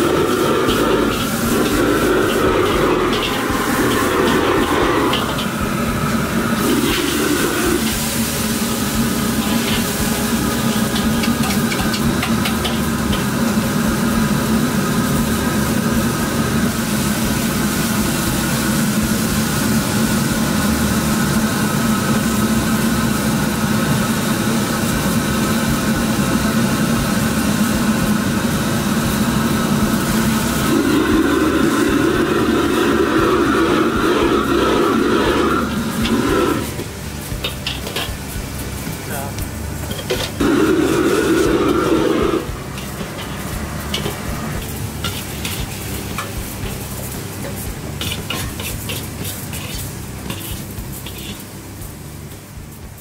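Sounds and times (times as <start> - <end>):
metal ladle scraping a wok: 0.0 - 13.6, 30.0 - 38.4, 39.8 - 51.6
gas burner rushing: 0.0 - 53.0
noodles sizzling in a wok: 0.0 - 53.0.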